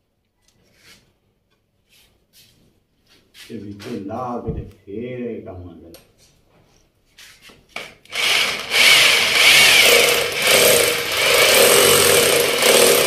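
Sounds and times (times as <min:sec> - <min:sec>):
electric drill boring into plaster: 0:08.1 - 0:13.0.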